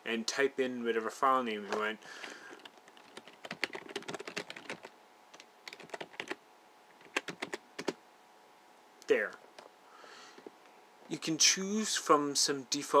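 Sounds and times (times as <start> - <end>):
computer keyboard typing: 2.5 - 6.4, 7.0 - 8.0.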